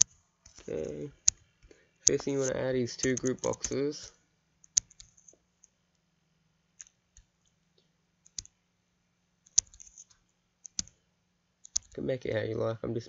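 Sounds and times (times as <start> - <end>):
computer mouse clicks: 0.0 - 3.8, 4.6 - 5.7, 6.8 - 7.6, 8.2 - 8.6, 9.4 - 11.0, 11.6 - 12.0
faint low hum: 0.0 - 13.0.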